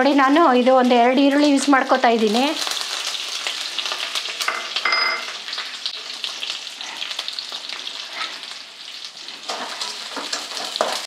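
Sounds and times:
onions sizzling in hot oil: 0:00.0 - 0:11.0
short ringing clink: 0:04.9 - 0:05.3.

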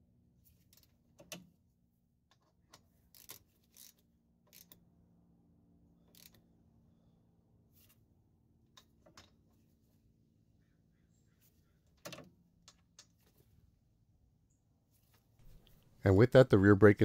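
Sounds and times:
metallic clicks and scrapes of wrench: 0:00.5 - 0:01.5, 0:02.3 - 0:04.8, 0:06.0 - 0:06.5.

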